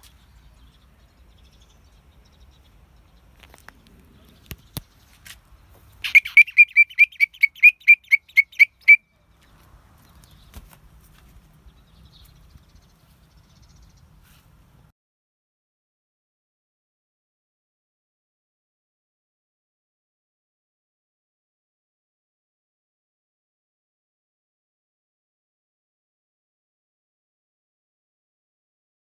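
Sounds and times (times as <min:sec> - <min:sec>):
bird chirping: 0:00.0 - 0:10.6, 0:11.5 - 0:14.3.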